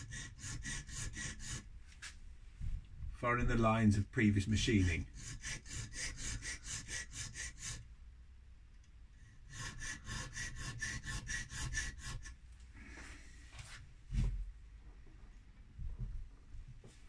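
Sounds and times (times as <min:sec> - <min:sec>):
file rasping on metal: 0:00.0 - 0:01.7, 0:04.8 - 0:07.9, 0:09.3 - 0:12.4.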